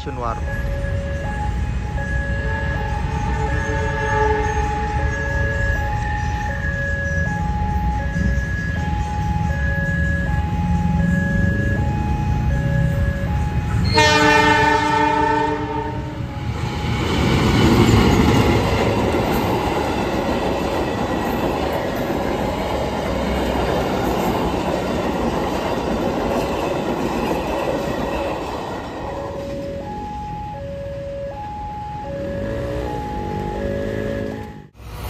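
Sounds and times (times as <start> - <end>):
level crossing alarm ringing: 0.0 - 34.8
train coaches rumbling and clattering: 0.0 - 35.0
train horn blast: 2.4 - 5.3, 13.8 - 16.3, 32.2 - 34.7.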